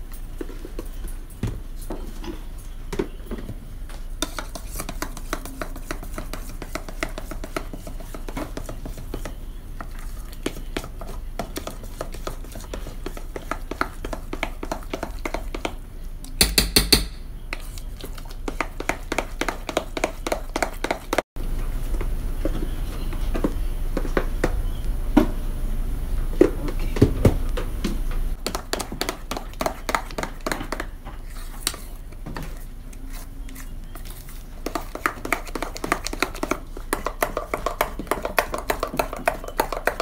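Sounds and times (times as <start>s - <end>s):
metal spoon scraping mixing bowl: 4.2s - 15.7s, 28.4s - 40.0s.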